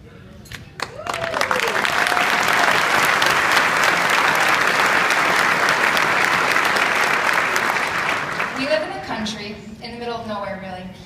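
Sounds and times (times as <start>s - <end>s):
large audience clapping: 0.8s - 9.2s.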